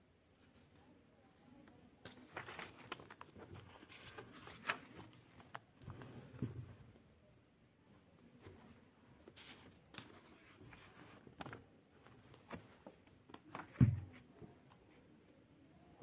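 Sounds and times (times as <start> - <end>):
book pages rustling: 1.6 - 6.9, 8.4 - 14.8
book thump: 13.5 - 14.2.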